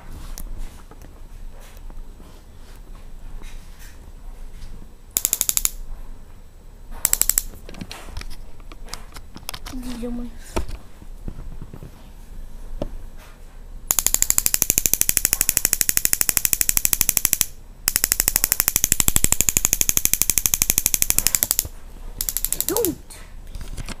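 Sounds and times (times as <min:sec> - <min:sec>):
electronic igniter sparking clicks: 0:05.2 - 0:05.8, 0:07.0 - 0:07.6.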